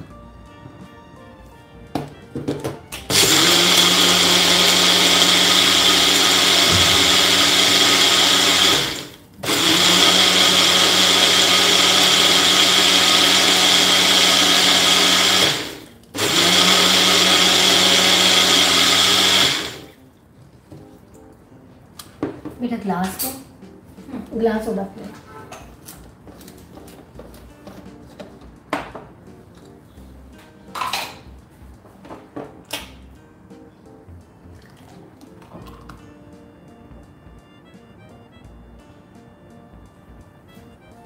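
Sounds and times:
blender motor whine: 0:03.1 - 0:20.0.

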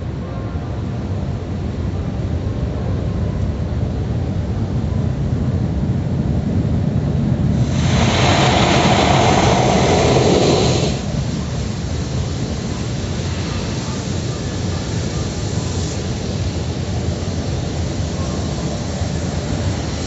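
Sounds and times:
car wash machinery rumble: 0:04.0 - 0:20.0
hissing rush of spray: 0:07.4 - 0:20.0.

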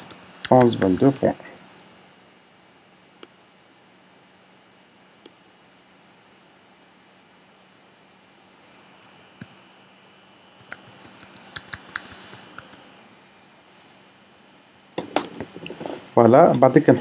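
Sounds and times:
faint keyboard typing: 0:00.0 - 0:01.4, 0:10.6 - 0:12.9.

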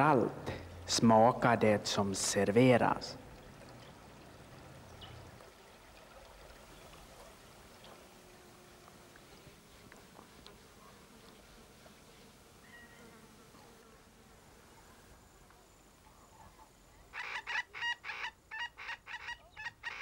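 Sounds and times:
bird calling: 0:12.6 - 0:13.2, 0:16.1 - 0:20.0.

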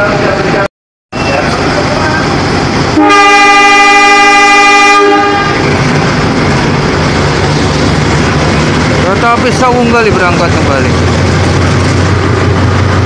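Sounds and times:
locomotive engine rumble: 0:00.0 - 0:13.0
locomotive horn blast: 0:02.9 - 0:05.9.

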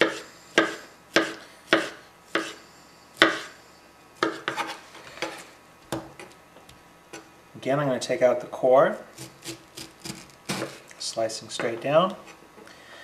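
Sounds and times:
knife chopping on cutting board: 0:00.0 - 0:02.6, 0:03.2 - 0:03.5, 0:04.2 - 0:06.2, 0:09.2 - 0:10.8.

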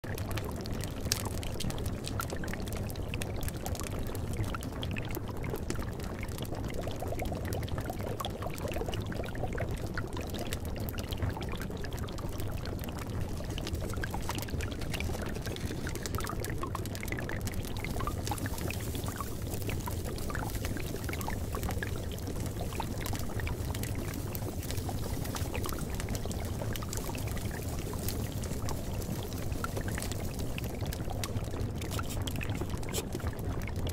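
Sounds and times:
small water drips: 0:00.0 - 0:33.9
running splashing water: 0:13.2 - 0:31.1.

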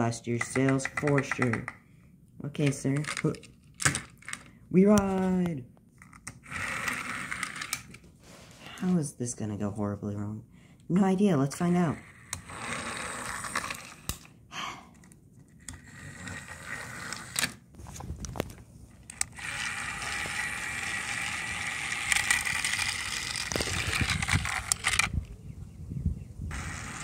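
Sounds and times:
toy engines clicking on plastic track: 0:00.3 - 0:01.8, 0:06.3 - 0:08.0, 0:11.6 - 0:14.3, 0:15.6 - 0:17.6, 0:19.1 - 0:25.1, 0:26.5 - 0:27.0
toy train motor whirring: 0:06.0 - 0:08.0, 0:11.6 - 0:14.3, 0:15.5 - 0:17.6, 0:19.0 - 0:25.2, 0:26.5 - 0:27.0.

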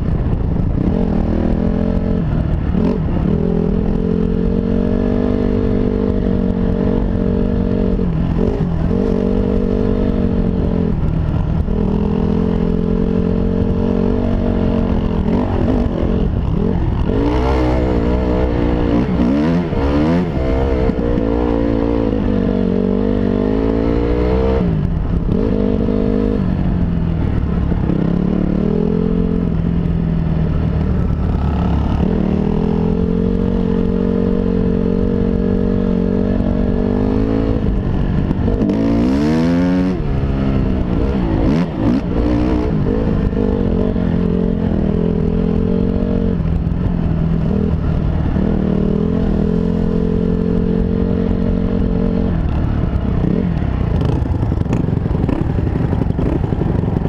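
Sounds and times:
dirt bike engine revving: 0:00.7 - 0:26.4, 0:30.8 - 0:46.4, 0:53.2 - 0:57.0.

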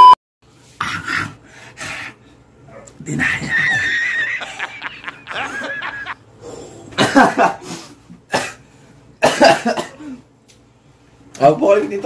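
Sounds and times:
people laughing: 0:03.2 - 0:06.2
person coughing: 0:06.9 - 0:07.7, 0:08.3 - 0:08.6, 0:09.2 - 0:10.2.

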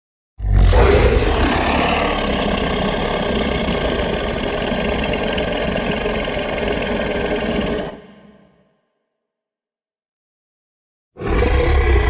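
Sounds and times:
deep creature growl: 0:00.4 - 0:08.8, 0:11.2 - 0:12.0.

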